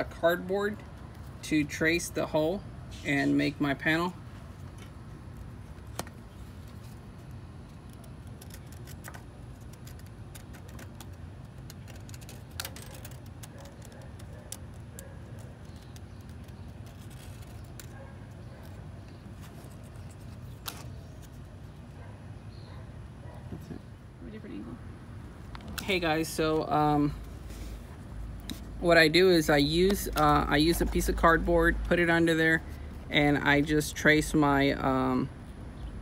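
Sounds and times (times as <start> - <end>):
pen and cardboard tapping metal: 7.6 - 18.9.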